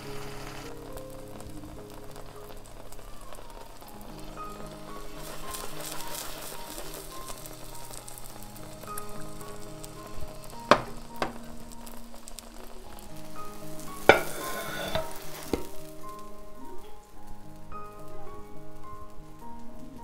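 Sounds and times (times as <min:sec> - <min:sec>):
food sizzling in frying pan: 0:00.0 - 0:20.0
utensil knocking on pan: 0:10.7 - 0:11.4, 0:14.1 - 0:15.7.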